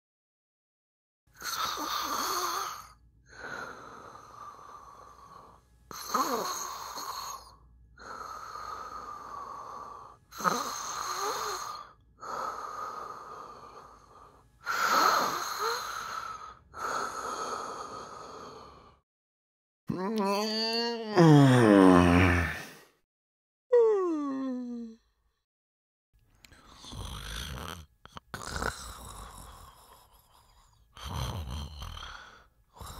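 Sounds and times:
person snoring: 1.4 - 19.0, 19.9 - 23.0, 26.5 - 32.9.

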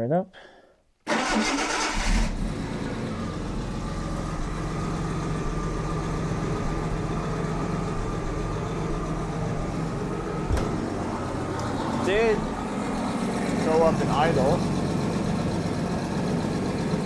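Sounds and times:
car engine starting and idling: 1.0 - 17.0.

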